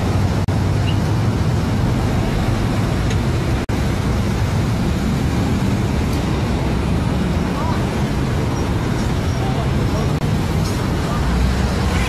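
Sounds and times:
road traffic passing: 0.0 - 12.0.

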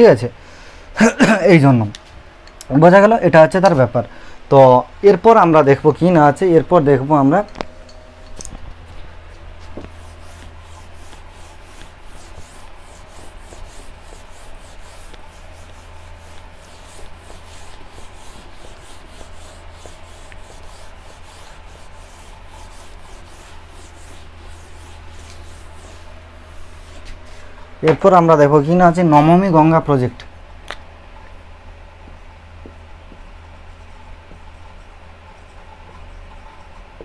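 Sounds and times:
steady low hum: 0.0 - 37.0
eraser rubbing on whiteboard: 9.6 - 27.5.

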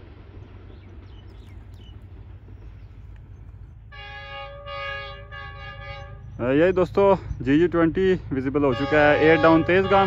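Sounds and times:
train rumbling: 0.0 - 10.0
locomotive air horn: 3.9 - 6.4, 8.5 - 10.0.

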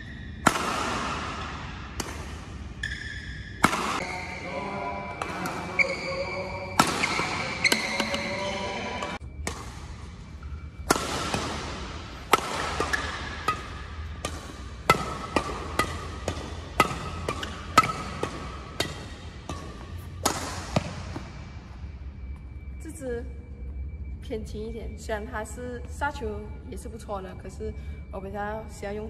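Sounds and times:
racquet striking shuttlecock: 0.4 - 4.2, 6.8 - 21.4.

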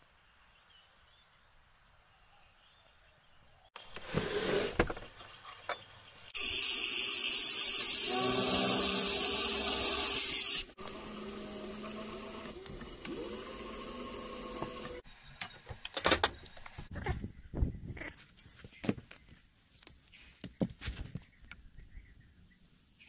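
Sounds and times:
drill boring into metal: 6.4 - 15.0.

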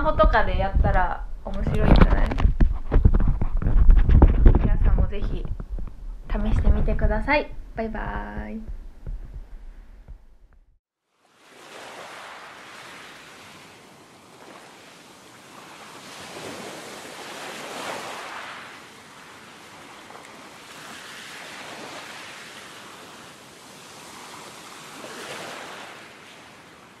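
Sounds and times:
ocean waves washing in: 11.0 - 27.0.

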